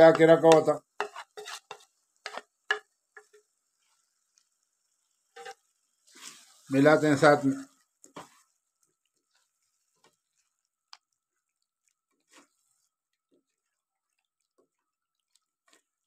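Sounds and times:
spatula scraping a pan: 0:00.0 - 0:04.2, 0:05.3 - 0:06.8, 0:08.0 - 0:10.6, 0:12.1 - 0:13.7.

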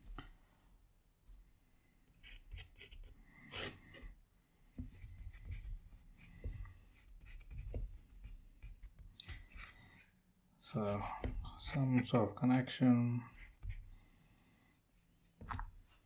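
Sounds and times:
paintbrush on paper: 0:04.8 - 0:10.2, 0:10.8 - 0:12.2, 0:13.2 - 0:16.0.

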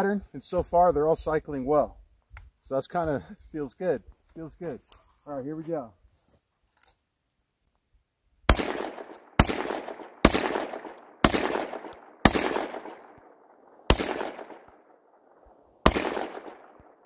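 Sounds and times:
shotgun shots with echo: 0:08.5 - 0:15.0, 0:15.8 - 0:17.0.

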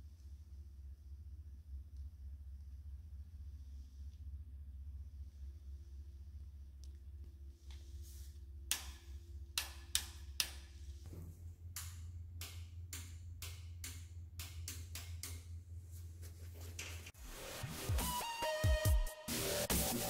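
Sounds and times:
low steady hum: 0:00.0 - 0:17.2
sharp clicks and light taps: 0:08.7 - 0:10.7, 0:11.7 - 0:15.5.

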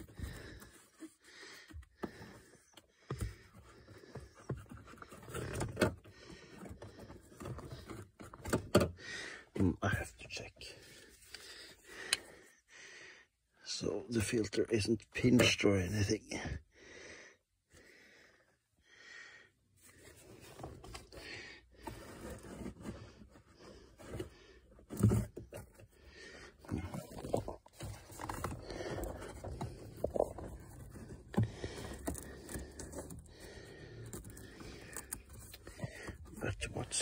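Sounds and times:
plastic scraping and rustling: 0:00.0 - 0:09.0, 0:19.9 - 0:37.0.

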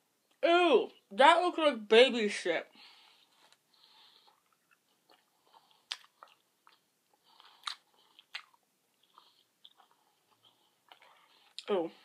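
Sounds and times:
wet chewing sounds: 0:03.1 - 0:11.7
sharp mouth clicks: 0:04.6 - 0:06.8, 0:07.4 - 0:09.3.

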